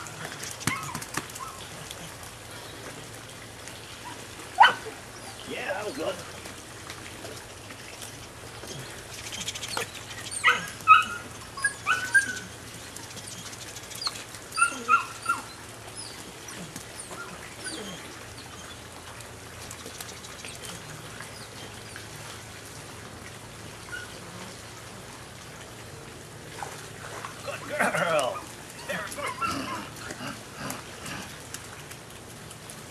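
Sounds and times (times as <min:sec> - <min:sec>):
puppy yipping: 0:04.6 - 0:04.9, 0:09.7 - 0:12.5, 0:14.0 - 0:15.6, 0:28.8 - 0:29.8.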